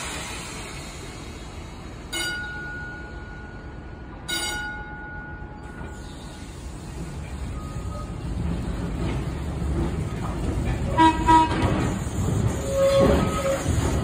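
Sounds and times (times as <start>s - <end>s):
streetcar rolling on rails: 0.0s - 14.0s.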